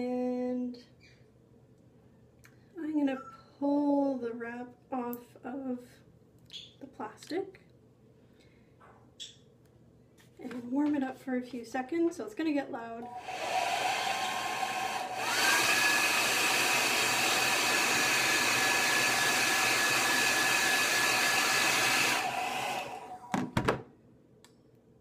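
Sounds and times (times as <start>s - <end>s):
hair dryer blowing: 13.0s - 23.4s
hair dryer knocking on table: 23.3s - 23.8s.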